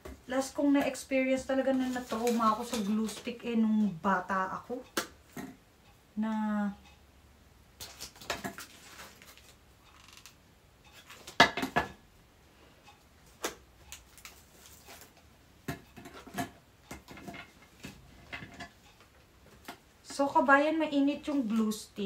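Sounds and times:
plastic basket clicks and rustles: 0:01.7 - 0:03.4.

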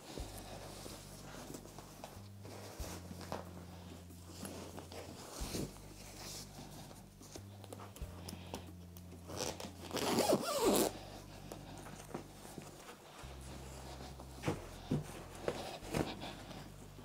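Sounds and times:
fabric rustling: 0:00.0 - 0:08.0, 0:09.1 - 0:17.0
zipper being pulled: 0:09.3 - 0:11.1.

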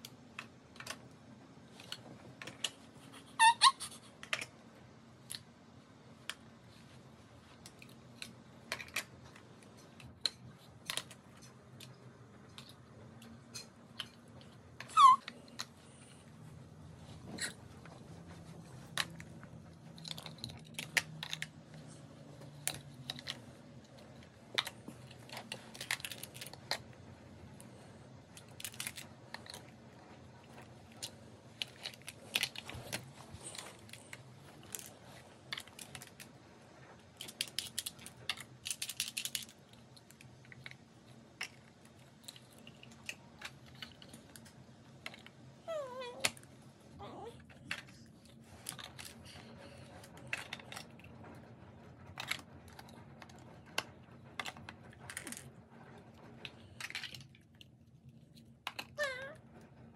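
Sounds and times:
plastic toy blocks clicking: 0:00.0 - 0:01.1, 0:07.6 - 0:15.7, 0:18.9 - 0:26.9, 0:28.4 - 0:29.7, 0:30.5 - 0:36.3, 0:37.2 - 0:45.3, 0:56.5 - 0:57.7, 0:58.6 - 0:59.4.

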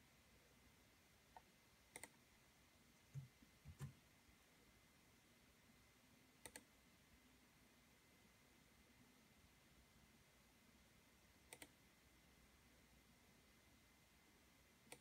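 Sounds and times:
keyboard and mouse clicks: 0:01.3 - 0:02.2, 0:03.1 - 0:04.0, 0:06.4 - 0:06.7, 0:11.5 - 0:11.8.

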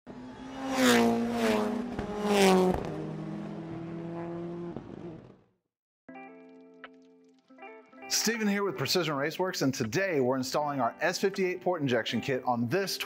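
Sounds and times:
car engine passing by: 0:00.1 - 0:05.4.

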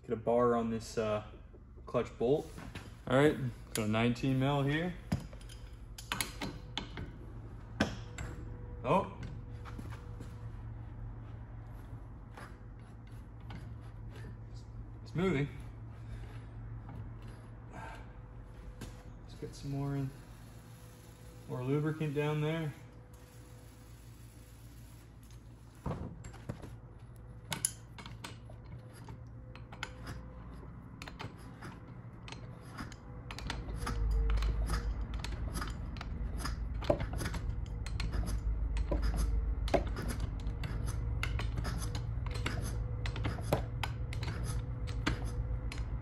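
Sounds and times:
low steady hum: 0:00.0 - 0:46.0
wrench metal clicks and scrapes: 0:05.2 - 0:07.1, 0:27.4 - 0:46.0.

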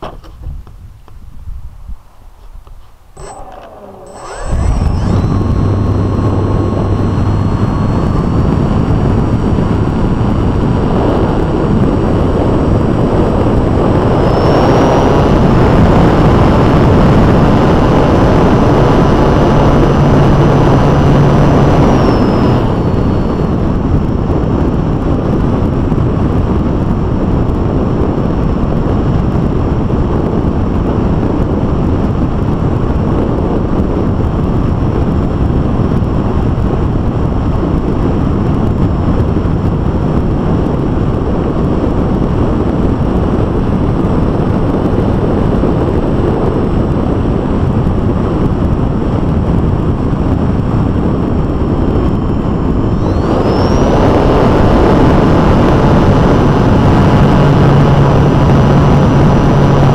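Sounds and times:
high electric motor whine: 0:03.1 - 0:27.8, 0:47.7 - 0:59.9
propeller wash and wind rushing: 0:03.2 - 0:59.9.

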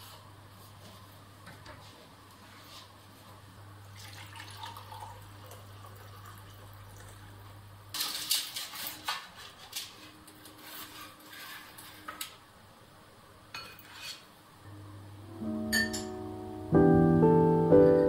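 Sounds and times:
water poured into mug: 0:04.0 - 0:07.2
spatula scraping metal tray: 0:08.0 - 0:12.2, 0:13.8 - 0:14.3.

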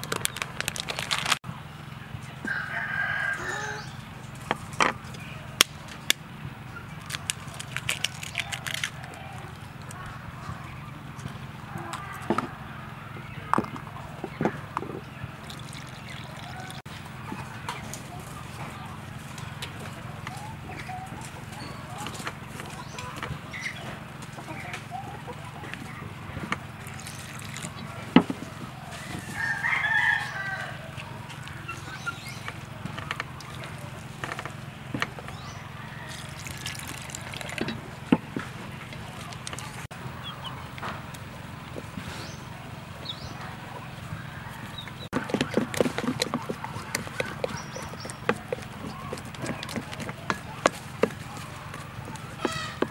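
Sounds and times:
water trickling and sloshing into bowl: 0:15.4 - 0:16.8, 0:36.1 - 0:37.8
chicken calling: 0:42.1 - 0:52.9
wooden spoon stirring batter: 0:44.9 - 0:52.9.

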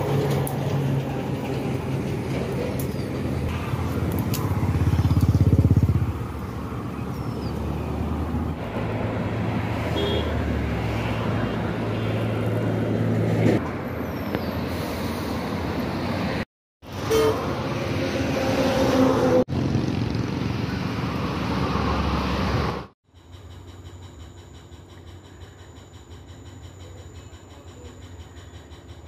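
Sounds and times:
steady engine hum: 0:00.0 - 0:13.4.

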